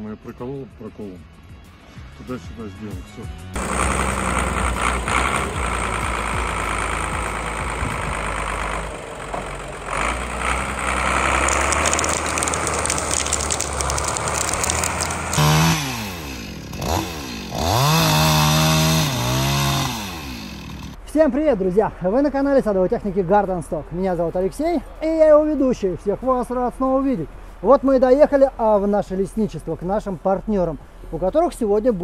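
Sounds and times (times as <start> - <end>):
chainsaw running: 3.6 - 21.0.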